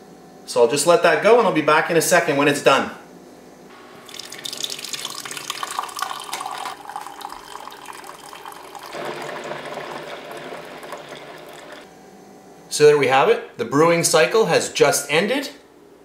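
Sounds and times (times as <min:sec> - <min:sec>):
coffee pouring into a mug: 0:04.0 - 0:11.9.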